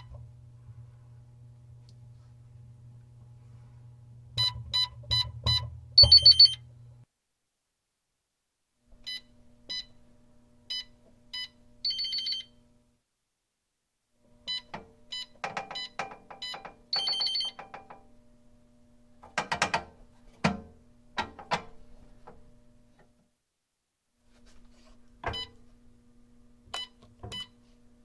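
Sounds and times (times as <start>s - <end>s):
keypad key beeps: 4.4s - 6.6s, 15.7s - 17.6s
metallic latch clunks and rattles: 19.2s - 21.8s.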